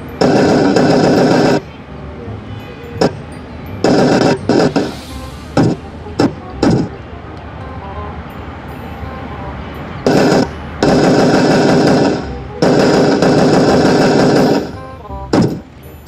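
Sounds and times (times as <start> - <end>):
automatic gunfire from loudspeaker: 0.2 - 1.6, 3.9 - 5.0, 10.1 - 15.6.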